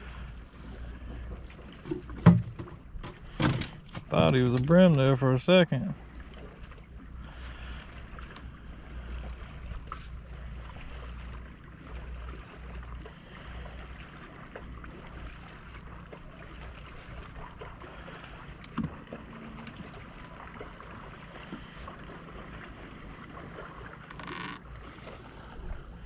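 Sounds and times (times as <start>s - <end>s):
water lapping at boat hull: 0.0s - 26.0s.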